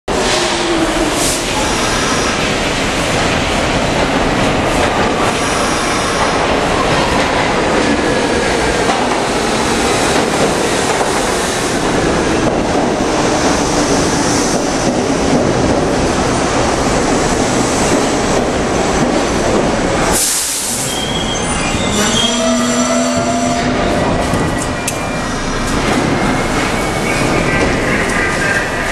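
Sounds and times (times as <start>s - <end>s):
train wheels rumbling on rails: 0.1s - 28.9s
air hiss: 20.1s - 21.0s.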